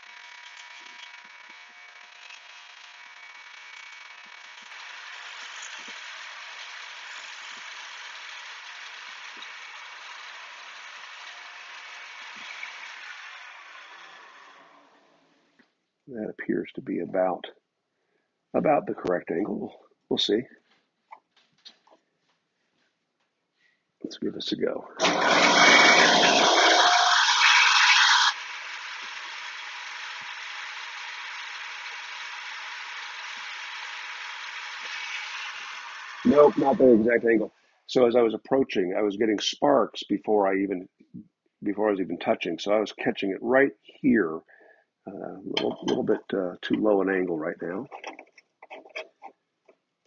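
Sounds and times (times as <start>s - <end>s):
steel grinding on wheel: 0.0s - 14.9s, 25.0s - 37.1s
grinding wheel spinning down: 0.0s - 15.0s, 25.0s - 37.1s.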